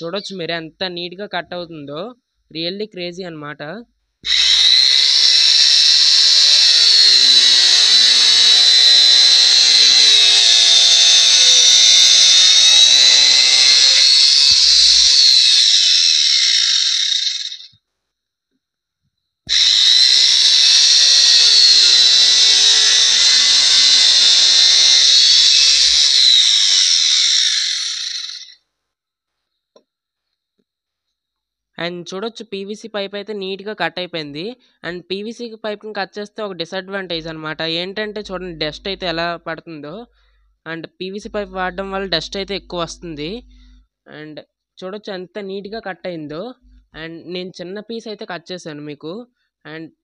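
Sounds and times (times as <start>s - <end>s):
angle grinder cutting pipe: 4.2s - 17.7s, 19.5s - 28.6s, 38.2s - 39.3s, 41.3s - 43.7s.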